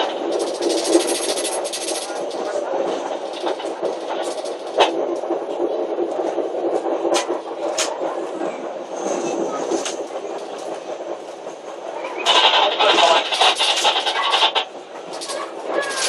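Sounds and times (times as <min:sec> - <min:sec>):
sharp clicks: 0:00.0 - 0:05.4, 0:09.7 - 0:16.0
train rumbling on rails: 0:00.0 - 0:16.0.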